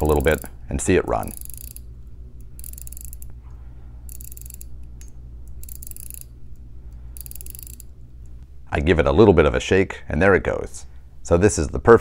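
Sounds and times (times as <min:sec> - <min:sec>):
watch winding ratchet clicks: 0:00.0 - 0:03.4, 0:04.0 - 0:08.4.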